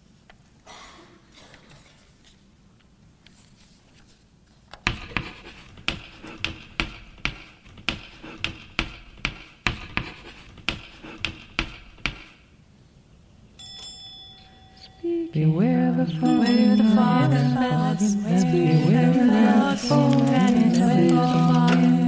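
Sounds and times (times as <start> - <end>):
sharp irregular knocks: 4.8 - 12.4.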